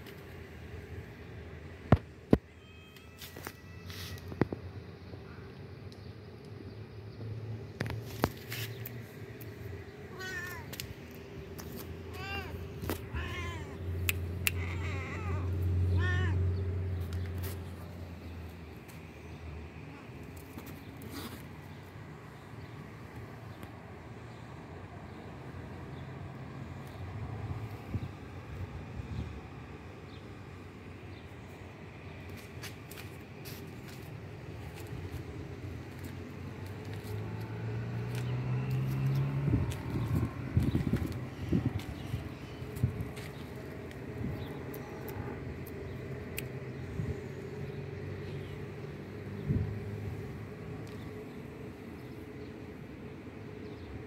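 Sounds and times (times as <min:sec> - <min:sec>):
cat meowing: 0:02.4 - 0:04.4, 0:10.1 - 0:10.7, 0:12.1 - 0:16.6
motor vehicle engine rumble: 0:32.0 - 0:52.5.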